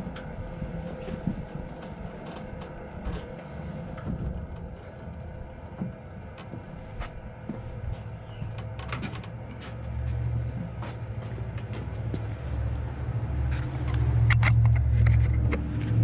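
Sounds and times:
low grinding hum of hoist: 0.0 - 16.0
metallic clicks and knocks: 13.5 - 16.0.

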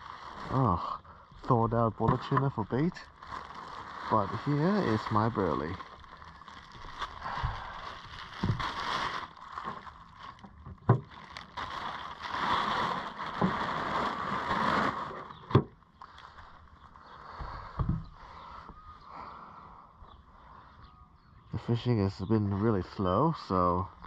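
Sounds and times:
plastic bags rustling: 0.0 - 17.3.

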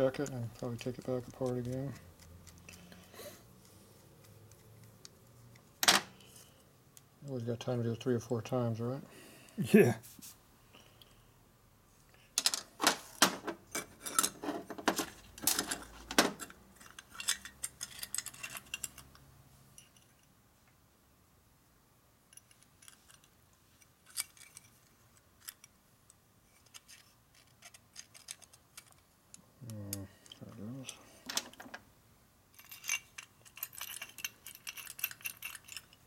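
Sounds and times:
small metal parts clinking: 0.0 - 3.1, 13.7 - 20.3, 22.3 - 29.1, 32.5 - 36.0.

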